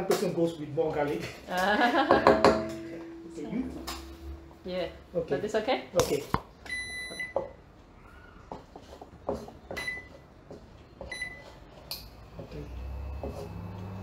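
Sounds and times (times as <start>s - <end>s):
low hum: 2.0s - 5.8s
wooden spatula scraping a wok: 13.0s - 14.0s.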